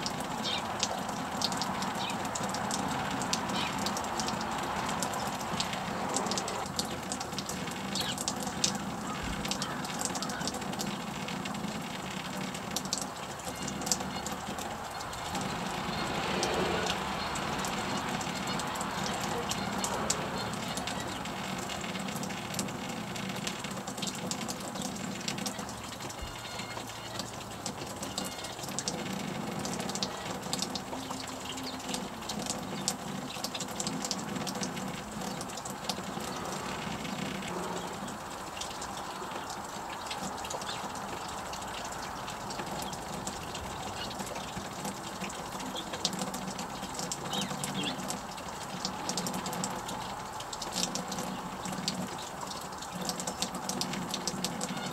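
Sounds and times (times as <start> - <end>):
small birds chirping: 0.3 - 5.6, 6.4 - 11.1, 45.2 - 49.7
steady outdoor rushing hiss: 14.1 - 25.2.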